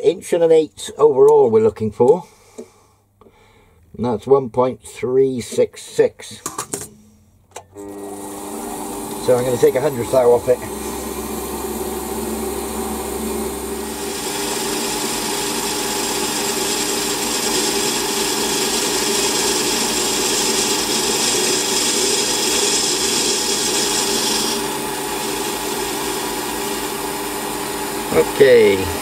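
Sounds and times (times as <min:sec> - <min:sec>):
lathe motor hum: 0:07.8 - 0:29.0
lathe cutting hiss: 0:07.9 - 0:29.0.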